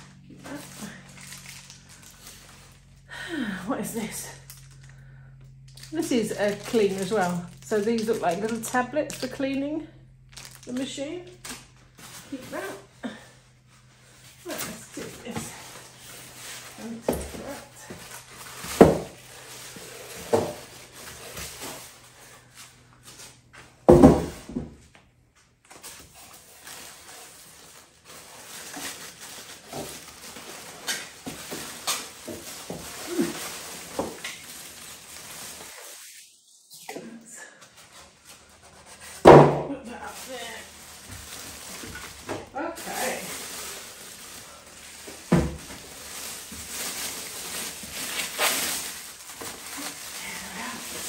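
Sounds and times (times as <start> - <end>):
plastic wrapping crinkling: 0.0 - 3.2, 3.8 - 24.4, 25.4 - 36.4, 37.5 - 51.0
plastic bag rustling: 0.0 - 24.6, 25.6 - 36.6, 37.4 - 51.0
polystyrene packing creaking: 0.0 - 24.6, 25.6 - 36.3, 37.4 - 51.0.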